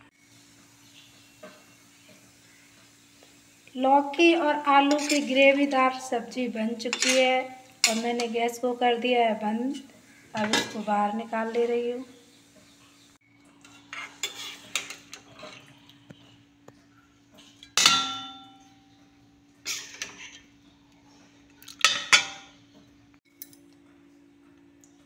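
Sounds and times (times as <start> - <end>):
metal ladle scraping and clanking: 13.7 - 15.6, 19.7 - 20.5.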